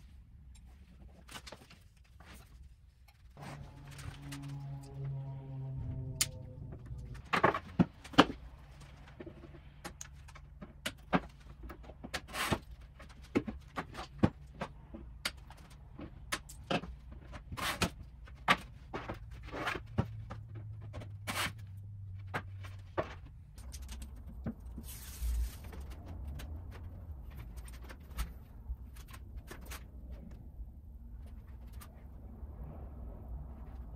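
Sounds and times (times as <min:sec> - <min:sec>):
low steady hum: 0:00.0 - 0:12.1.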